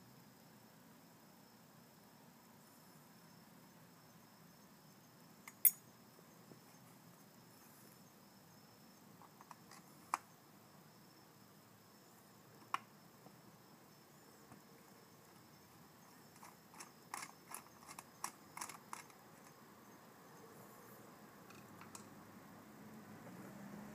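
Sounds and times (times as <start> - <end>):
faint handling clicks: 16.4 - 19.6.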